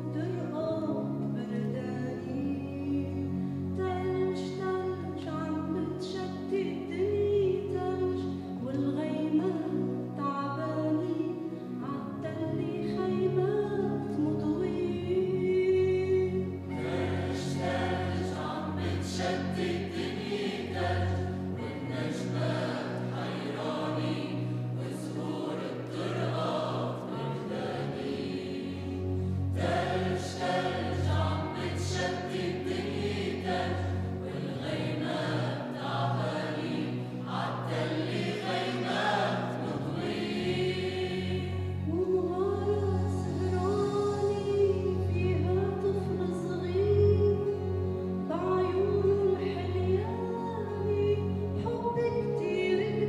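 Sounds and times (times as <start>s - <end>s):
choir singing a carol: 10.6s - 53.0s.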